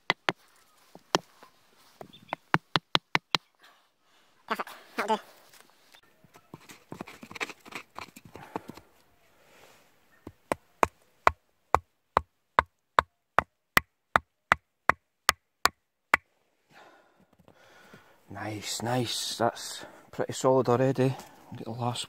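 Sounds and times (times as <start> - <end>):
hammer knocking wooden peg: 0.0 - 0.4, 2.3 - 3.4, 11.7 - 15.8.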